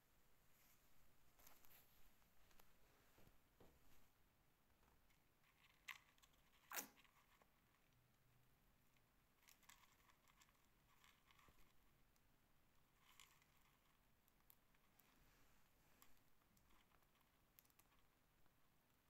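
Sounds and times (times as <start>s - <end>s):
mouse nibbling seeds: 5.0s - 15.2s, 16.0s - 19.0s.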